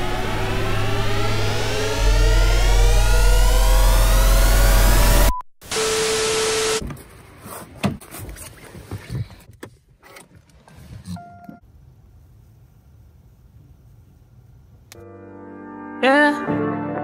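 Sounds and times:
short electronic tone: 1.2s - 6.8s.

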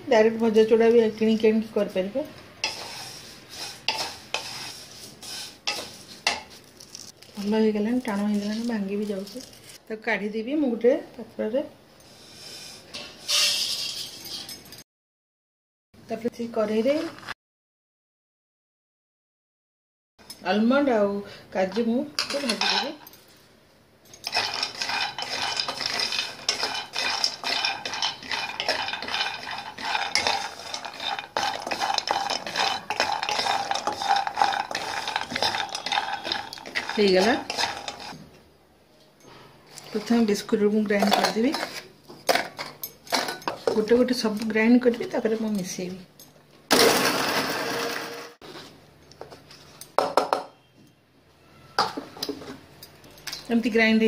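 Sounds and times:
nuts rattling in metal pan: 24.2s - 38.2s, 46.7s - 48.4s.

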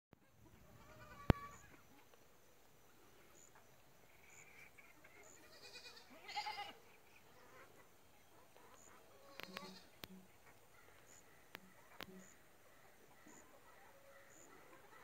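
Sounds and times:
turkeys calling: 0.3s - 2.2s, 6.8s - 15.0s.

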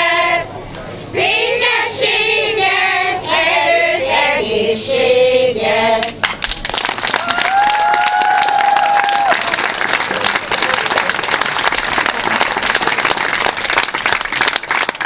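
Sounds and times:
women's choir singing: 0.0s - 6.2s
applause: 6.2s - 15.0s.

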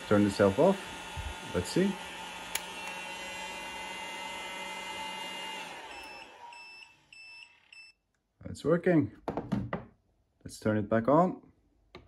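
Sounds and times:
heat gun running: 0.0s - 7.7s
heat gun spinning down: 0.0s - 7.7s.

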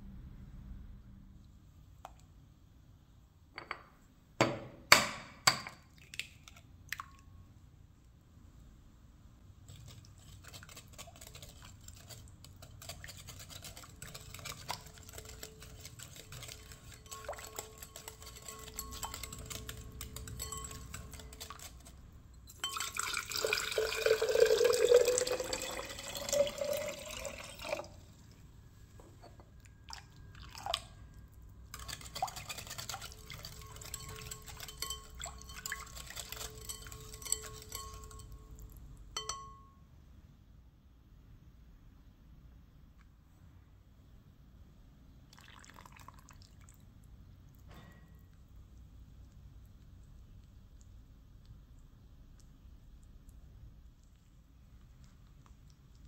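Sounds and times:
whisk scraping glass bowl: 9.6s - 24.7s, 31.6s - 38.6s
water poured into glass jug: 14.1s - 21.7s, 22.5s - 28.2s, 29.8s - 31.0s, 31.8s - 38.3s, 45.3s - 46.9s.

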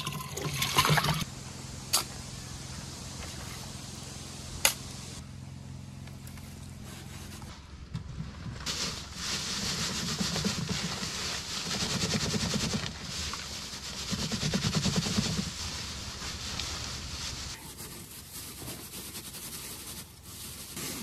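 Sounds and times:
straw rustling on wire mesh: 8.6s - 21.0s.

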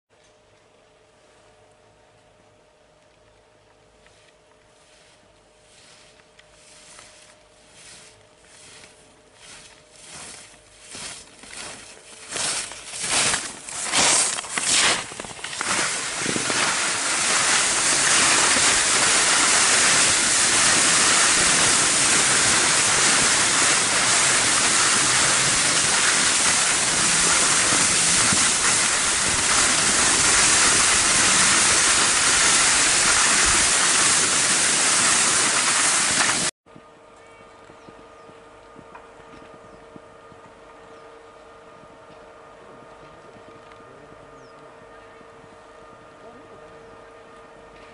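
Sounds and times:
skis sliding on snow: 4.1s - 36.5s
skis swishing on packed snow: 4.1s - 36.5s
wind rushing over microphone: 15.6s - 36.5s.

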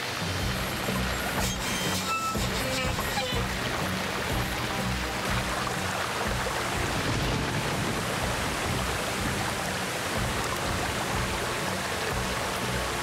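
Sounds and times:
heavy rain falling: 0.0s - 13.0s.

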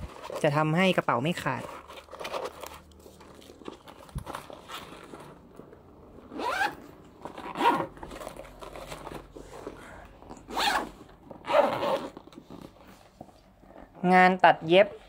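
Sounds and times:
backpack zipper pulled: 6.3s - 9.8s, 10.4s - 13.0s.

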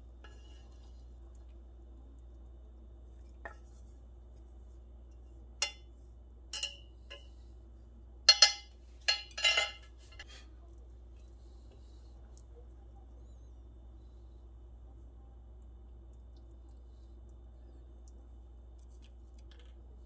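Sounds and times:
chopsticks and pot clinking on plate: 5.6s - 5.9s, 6.5s - 7.3s, 8.3s - 10.4s.

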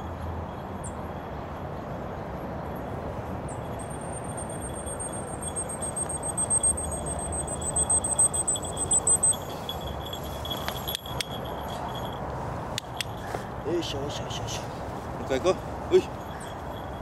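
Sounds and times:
outdoor background noise: 0.0s - 17.0s
high-pitched whistle-like tone: 3.8s - 11.4s.

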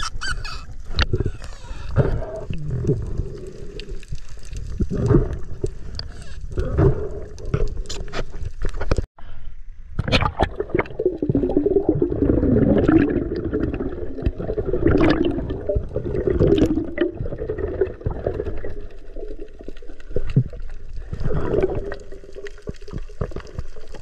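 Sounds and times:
underwater bubbling and gurgling: 0.1s - 9.1s, 10.0s - 24.0s
small underwater clicks: 0.7s - 9.1s.

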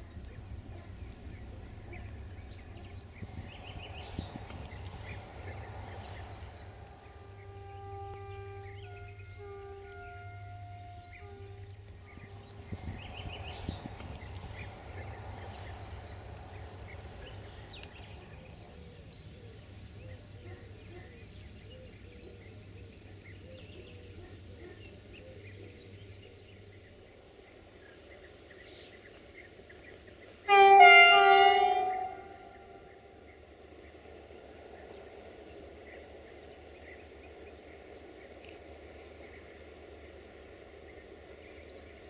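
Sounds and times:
insect chirring: 0.0s - 23.4s, 24.3s - 42.0s
diesel locomotive horn: 6.0s - 13.7s, 30.4s - 33.0s
faint calls: 30.5s - 33.0s.

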